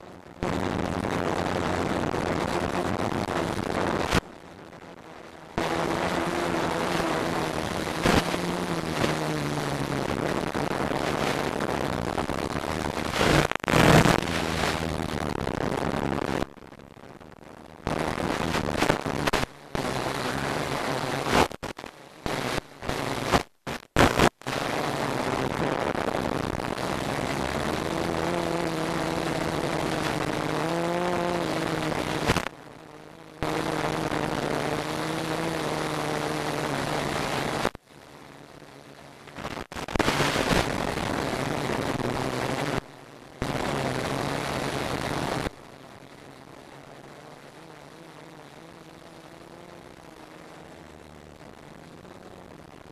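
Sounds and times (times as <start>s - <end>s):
steady rushing noise: 12.3s - 15.3s.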